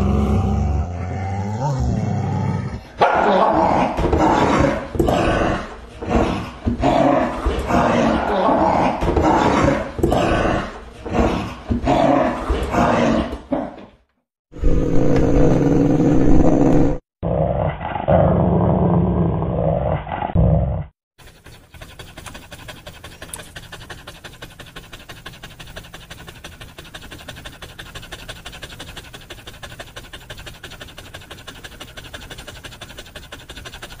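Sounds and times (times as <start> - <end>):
dog growling and snarling: 0.0 - 13.8, 14.5 - 34.0
dog panting: 21.2 - 34.0.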